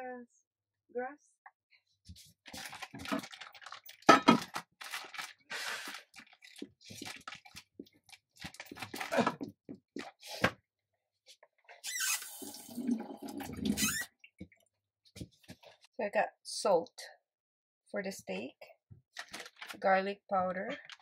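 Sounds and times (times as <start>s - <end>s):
plastic packaging crinkling and tearing: 2.4s - 9.3s, 19.2s - 19.8s.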